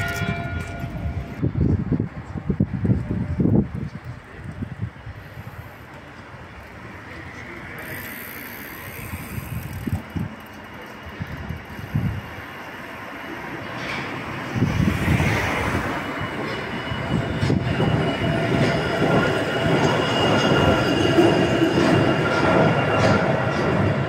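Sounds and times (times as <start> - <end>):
railway wheels rumbling on rail: 0.0 - 24.0
high squealing tones: 14.5 - 23.2.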